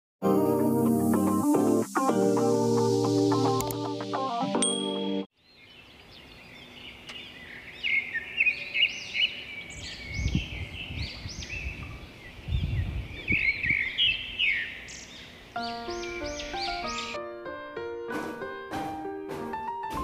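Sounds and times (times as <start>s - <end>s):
birds chirping: 5.3s - 17.2s.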